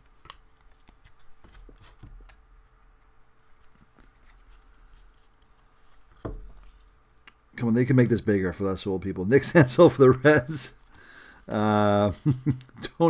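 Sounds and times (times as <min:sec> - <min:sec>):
cards tapping and rustling: 0:00.0 - 0:06.8.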